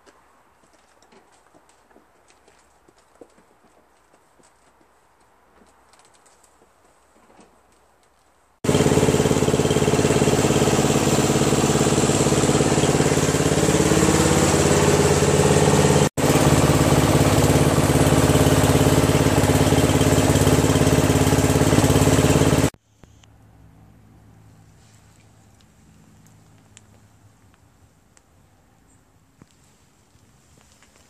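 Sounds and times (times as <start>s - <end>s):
lawn tractor engine running: 8.6s - 22.8s.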